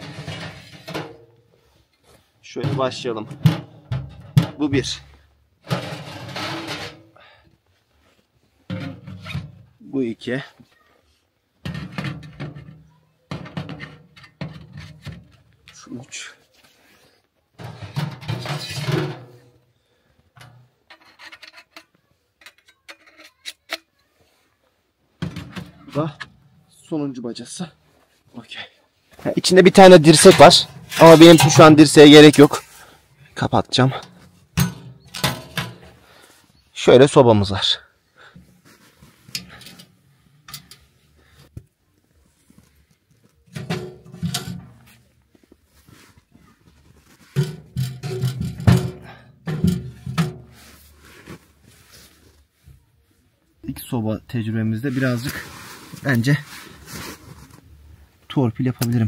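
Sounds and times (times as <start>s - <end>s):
sheet metal scraping: 0.0s - 1.3s, 5.6s - 7.1s, 17.6s - 19.5s, 29.4s - 32.8s
metal stove door knocks and clunks: 2.6s - 5.0s, 17.6s - 19.4s, 34.6s - 35.9s, 47.4s - 50.6s.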